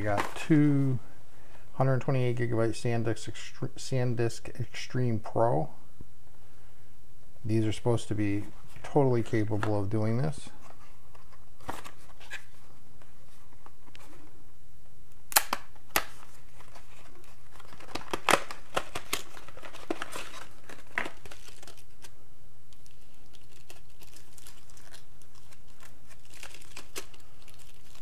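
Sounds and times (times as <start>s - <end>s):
steady low hum: 0.0s - 28.0s
packaging being torn open: 16.7s - 22.1s, 22.7s - 28.0s.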